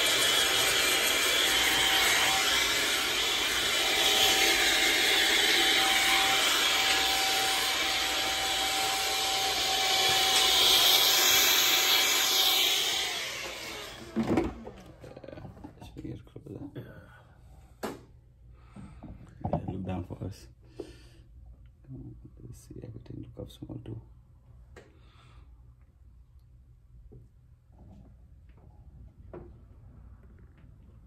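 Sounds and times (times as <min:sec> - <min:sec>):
hair dryer blowing: 0:00.0 - 0:15.0.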